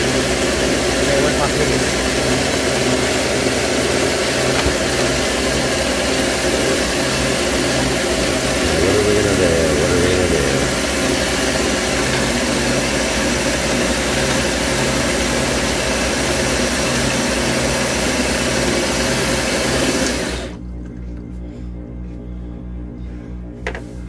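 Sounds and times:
ring saw humming: 8.4 - 11.4.

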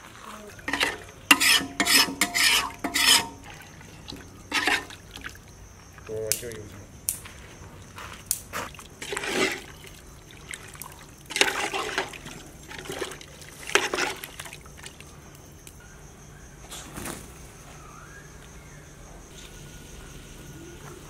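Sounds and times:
ladle stirring soup in metal pot: 0.6 - 5.5, 8.8 - 14.9
liquid splashing and trickling: 3.3 - 6.7, 7.8 - 15.2.

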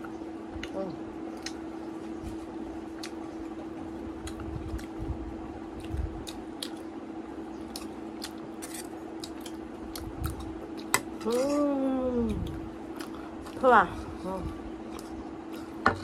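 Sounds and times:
steady low hum: 0.0 - 16.0
chewing and mouth smacking: 0.6 - 1.6, 2.9 - 3.5, 4.2 - 5.0, 5.8 - 6.9, 7.6 - 11.0.

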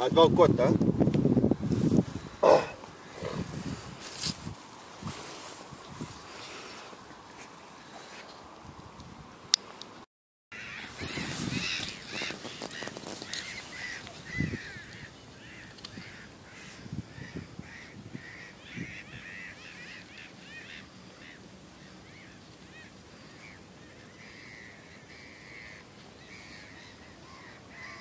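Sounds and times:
rustling: 3.1 - 8.5, 10.7 - 14.9
birds honking: 10.5 - 28.0.

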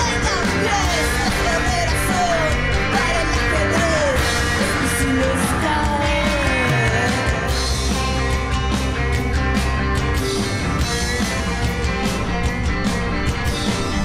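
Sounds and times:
woman singing: 0.0 - 7.5
drums: 0.0 - 14.0
electric guitar: 0.0 - 14.0
keyboard: 0.0 - 14.0.

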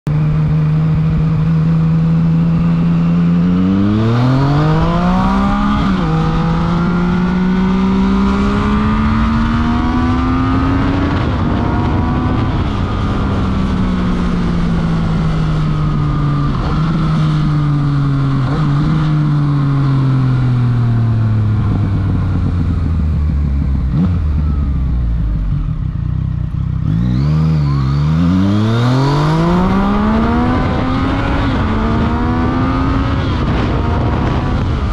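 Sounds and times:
motorcycle engine revving: 0.1 - 34.9.

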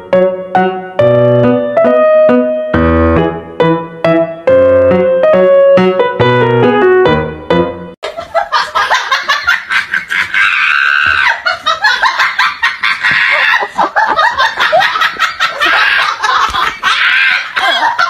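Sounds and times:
piano music: 0.0 - 8.0
hearty laughter: 8.0 - 18.0.

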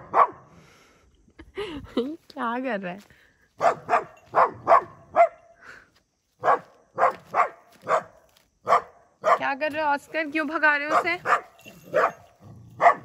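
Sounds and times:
small dog barking: 0.0 - 0.4, 3.6 - 5.4, 6.4 - 9.5, 10.9 - 13.0.

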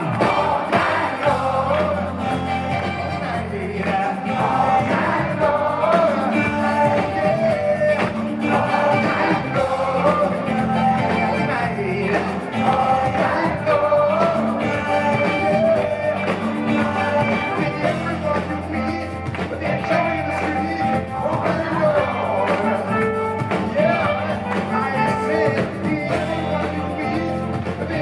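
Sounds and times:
bass guitar: 0.0 - 28.0
drums: 0.0 - 28.0
electric guitar: 0.0 - 28.0
lead vocal singing: 0.0 - 28.0.

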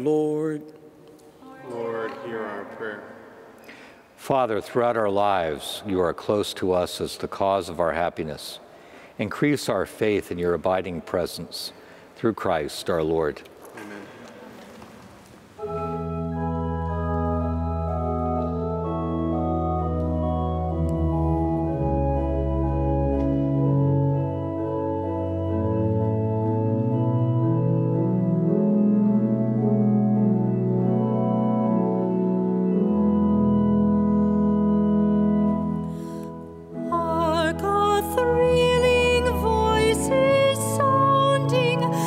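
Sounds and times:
church organ chords: 15.6 - 42.0.

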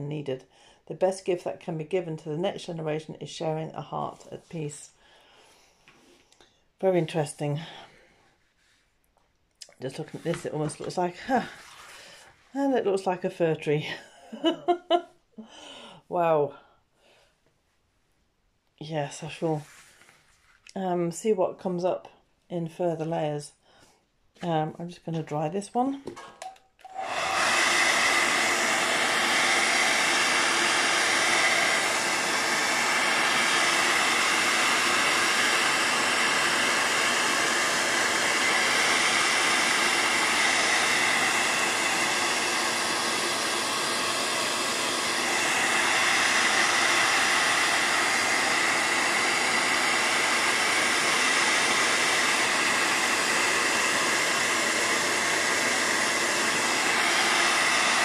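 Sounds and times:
hot-air dryer blowing: 9.9 - 12.2, 26.8 - 58.0.

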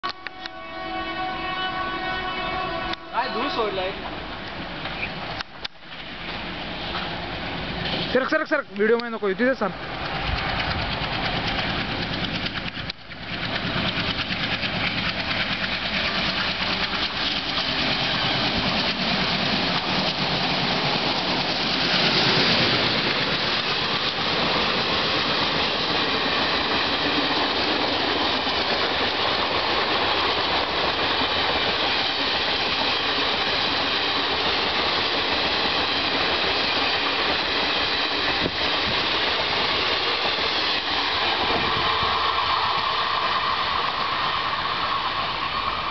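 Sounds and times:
passenger coaches rumbling on rails: 0.0 - 45.9
diesel locomotive engine running: 0.1 - 45.9.

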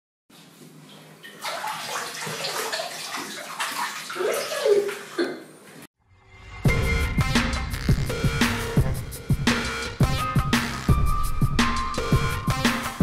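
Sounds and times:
water splashing: 1.2 - 5.5.

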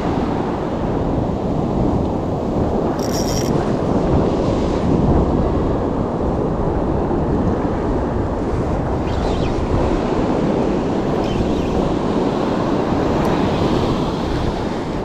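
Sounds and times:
wind buffeting microphone: 0.0 - 15.0
ocean surf washing onto beach: 9.6 - 15.0.

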